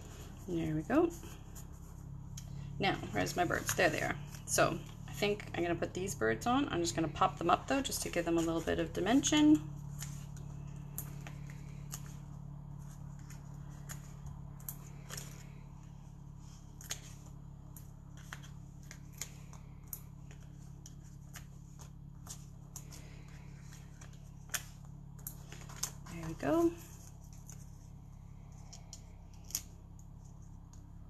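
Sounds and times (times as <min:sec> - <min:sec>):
steady low hum: 0:00.0 - 0:31.0
paper clicks and crinkles: 0:07.0 - 0:31.0.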